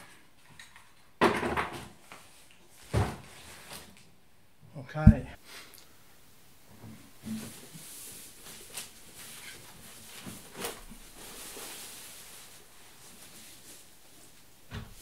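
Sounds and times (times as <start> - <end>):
plastic packaging rustling: 7.8 - 14.4.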